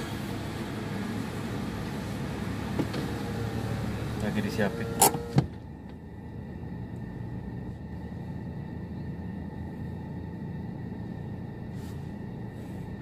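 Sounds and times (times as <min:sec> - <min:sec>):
car idling rumble: 0:00.0 - 0:13.0
faint high hum: 0:03.8 - 0:13.0.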